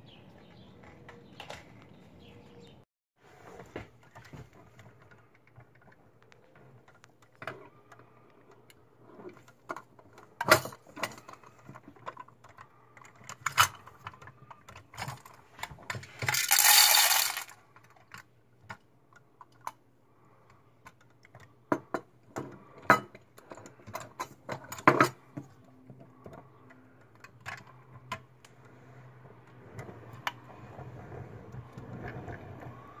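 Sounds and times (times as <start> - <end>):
plastic toy clicks and knocks: 4.8 - 19.8.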